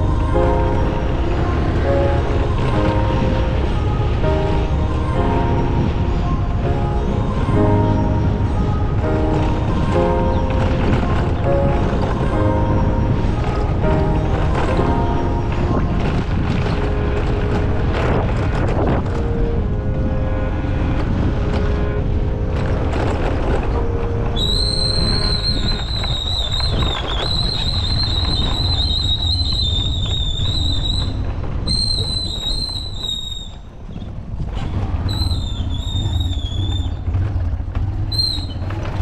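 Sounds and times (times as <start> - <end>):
wind buffeting microphone: 0.0 - 39.0
high wavering whistle-like squeal: 24.4 - 33.7, 35.1 - 37.0
motorcycle engine running: 33.9 - 39.0.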